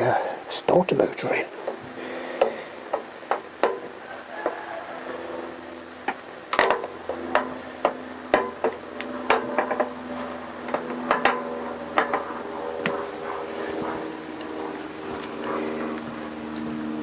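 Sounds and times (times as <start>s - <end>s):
steady hum: 0.0s - 17.0s
metal knocking against engine case: 6.6s - 10.0s.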